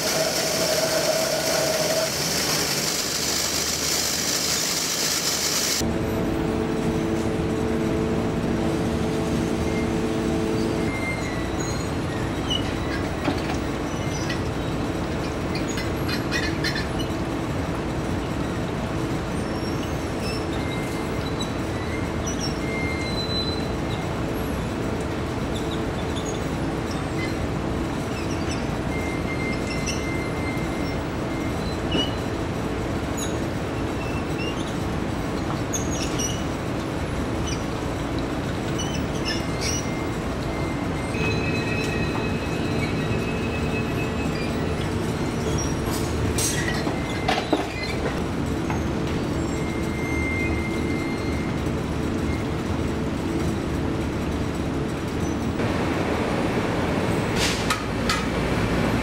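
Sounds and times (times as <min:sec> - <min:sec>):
workshop machinery hum: 0:00.0 - 0:59.0
high squeaks: 0:09.7 - 0:14.7, 0:38.7 - 0:51.6.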